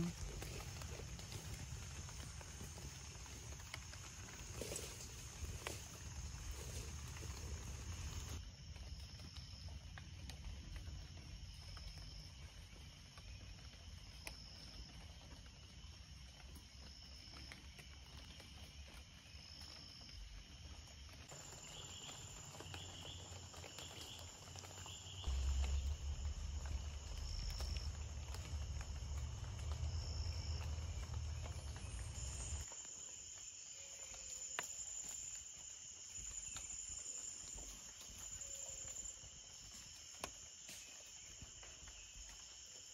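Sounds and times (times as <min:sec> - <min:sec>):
insects chirring: 0:00.0 - 0:42.9
low rumble: 0:25.3 - 0:32.6.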